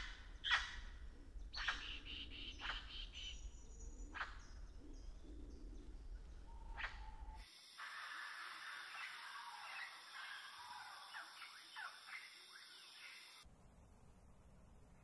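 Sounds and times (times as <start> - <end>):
faint low rumble: 0.0 - 7.4, 13.5 - 15.0.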